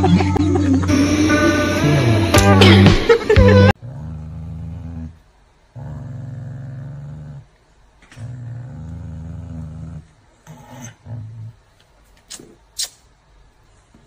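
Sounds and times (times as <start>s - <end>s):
dog growling: 3.8s - 11.7s.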